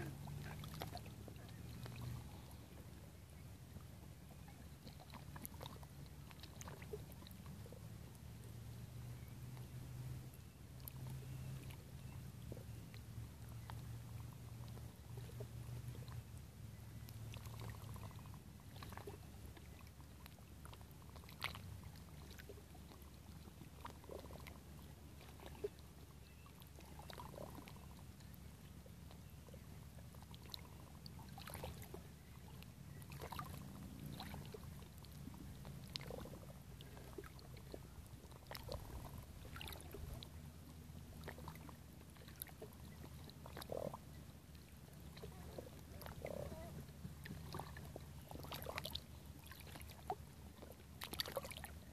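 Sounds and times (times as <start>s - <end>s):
ripples lapping against rock: 0.0s - 3.0s, 17.1s - 28.4s, 29.6s - 51.9s.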